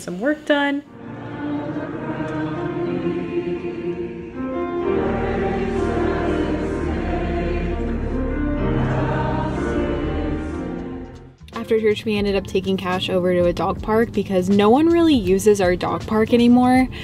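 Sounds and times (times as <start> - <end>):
voices singing worship music: 0.9 - 11.4
instrumental accompaniment: 0.9 - 17.0.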